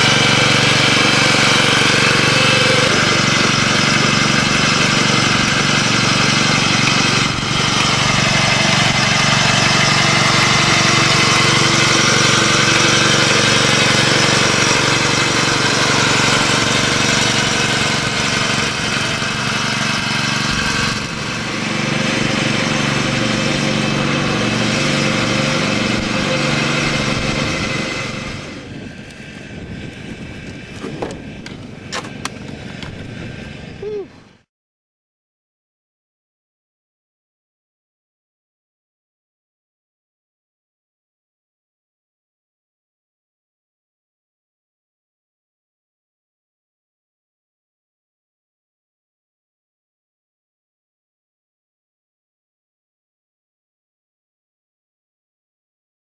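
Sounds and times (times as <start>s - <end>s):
small engine running: 0.0s - 34.5s.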